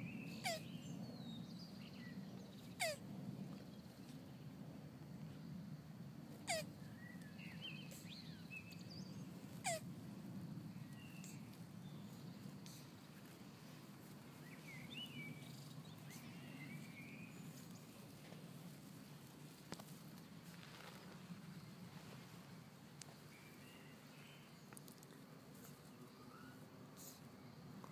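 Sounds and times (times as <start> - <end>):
low outdoor hum: 0.0 - 27.9
tortoise squeaks: 0.3 - 0.7, 2.8 - 3.0, 6.4 - 6.7, 9.6 - 9.9
faint bird chirps: 6.4 - 9.8, 10.8 - 13.1, 14.4 - 18.1, 25.6 - 27.2.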